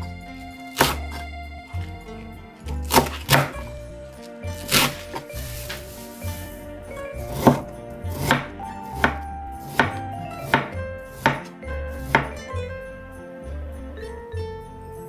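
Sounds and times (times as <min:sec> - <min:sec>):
knife chopping on wooden board: 0:00.8 - 0:01.2, 0:02.8 - 0:03.6, 0:04.6 - 0:05.8, 0:07.3 - 0:12.4.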